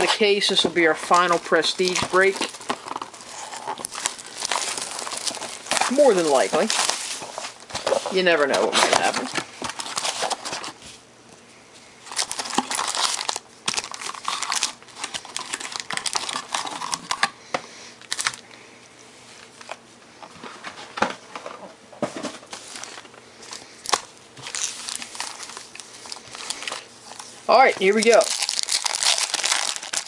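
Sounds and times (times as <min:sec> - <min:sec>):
foil wrappers crinkling: 0:00.0 - 0:10.9, 0:12.0 - 0:17.4, 0:18.0 - 0:18.4, 0:22.4 - 0:30.0.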